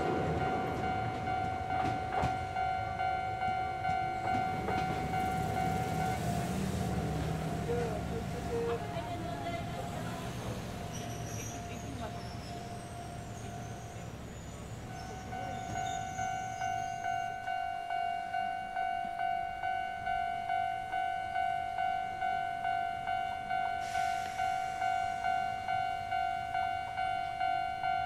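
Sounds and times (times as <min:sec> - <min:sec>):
level crossing warning bell: 0:00.0 - 0:28.0
hiss: 0:23.8 - 0:25.2.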